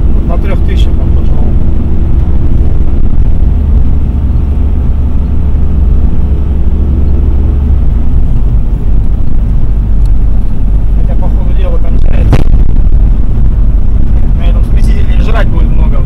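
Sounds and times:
car engine and road noise: 0.0s - 16.0s.

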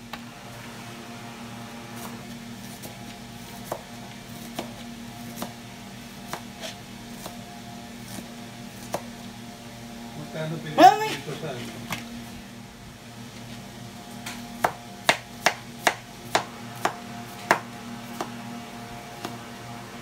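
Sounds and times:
steady low hum: 0.0s - 20.0s
knife chopping on cutting board: 2.0s - 5.6s, 6.2s - 7.4s, 8.1s - 9.1s, 14.3s - 18.4s.

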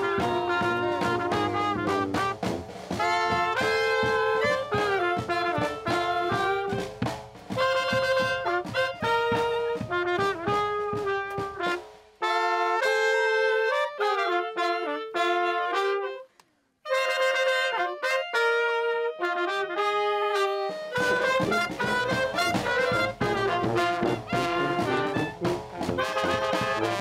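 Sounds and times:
bass and snare drum beats: 0.0s - 12.9s, 20.9s - 27.0s
brass band playing: 0.0s - 27.0s.

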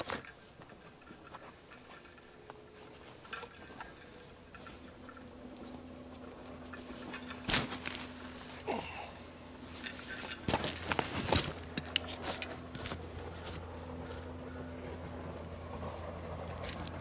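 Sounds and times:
low steady hum: 0.0s - 17.0s
footsteps crunching on a trail: 9.6s - 17.0s.

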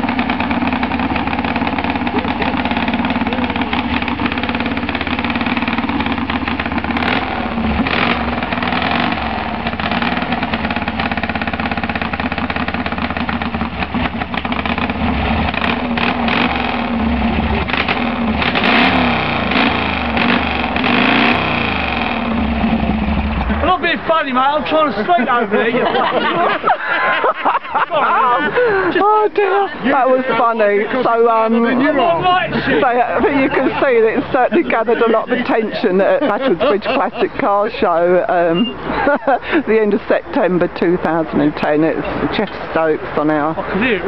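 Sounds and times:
motorcycle engine revving: 0.0s - 25.4s, 29.9s - 39.7s.

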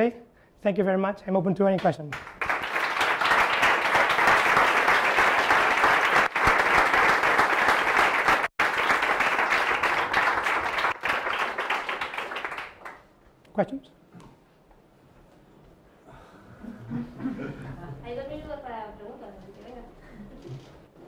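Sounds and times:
audience applauding: 2.1s - 13.1s.

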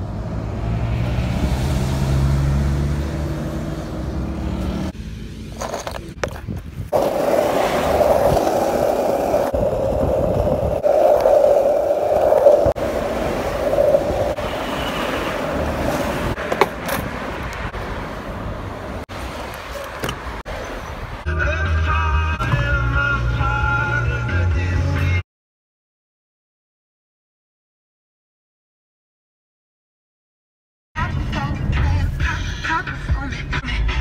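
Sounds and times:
street traffic: 0.0s - 25.2s, 31.0s - 34.0s
skateboard wheels rolling on pavement: 1.4s - 21.3s.

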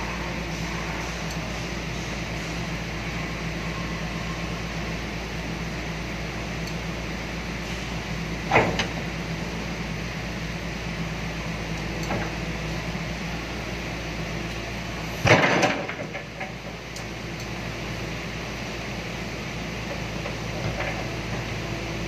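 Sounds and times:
excavator diesel engine running: 0.0s - 22.0s
metal clunk: 15.2s - 16.6s.

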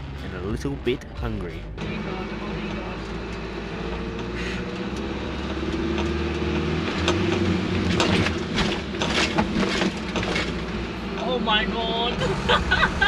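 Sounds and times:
diesel truck engine running hard: 0.0s - 13.0s
knocks and rattles: 5.4s - 11.2s.

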